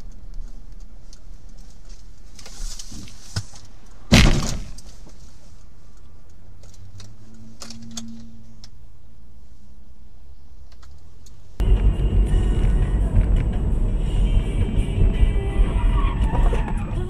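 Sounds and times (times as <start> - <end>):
road and engine noise: 0.0 - 17.0
car collision impact: 4.1 - 4.9.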